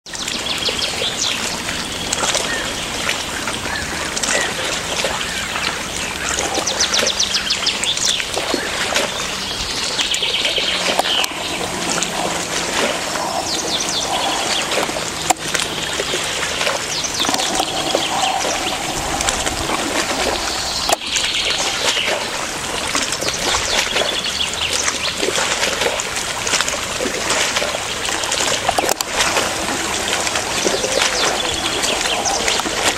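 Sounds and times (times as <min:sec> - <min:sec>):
shallow water trickling: 0:00.2 - 0:32.9
small birds chirping and whistling: 0:06.2 - 0:16.2, 0:16.8 - 0:22.3.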